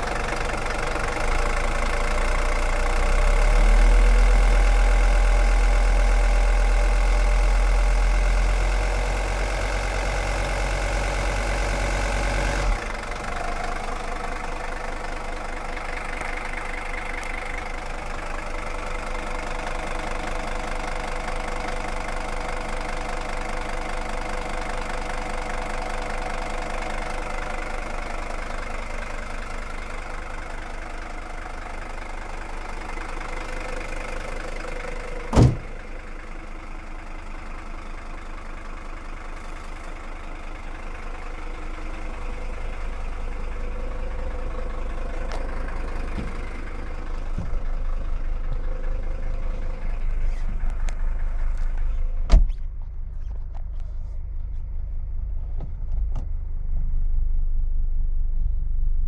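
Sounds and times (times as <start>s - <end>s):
diesel engine idling: 0.0s - 59.0s
car bonnet slammed shut: 35.3s - 35.8s, 52.3s - 52.7s.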